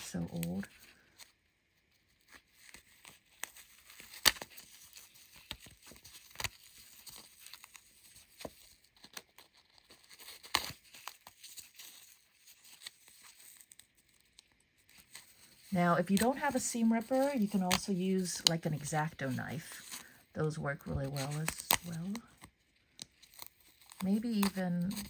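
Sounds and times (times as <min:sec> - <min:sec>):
threads snipping and popping: 0:21.0 - 0:25.0.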